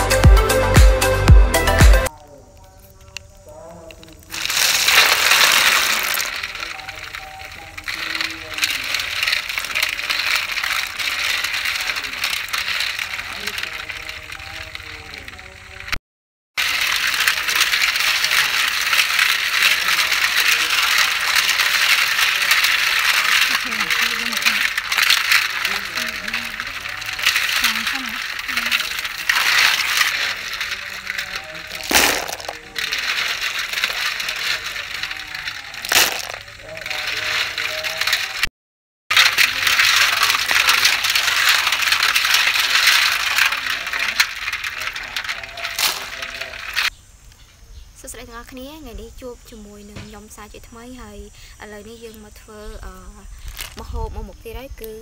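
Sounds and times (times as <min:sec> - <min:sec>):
snail shells clattering: 0:02.0 - 0:16.0, 0:16.6 - 0:38.5, 0:39.1 - 0:55.0
water splashing: 0:03.5 - 0:16.0, 0:16.6 - 0:38.5, 0:39.1 - 0:46.9.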